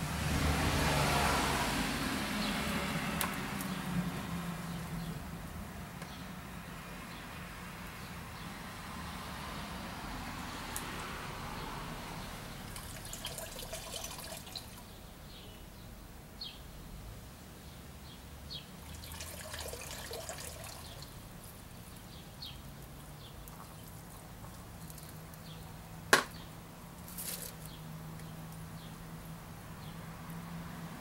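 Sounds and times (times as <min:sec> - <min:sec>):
plastic bucket knocking on pavement: 0:26.1 - 0:26.4.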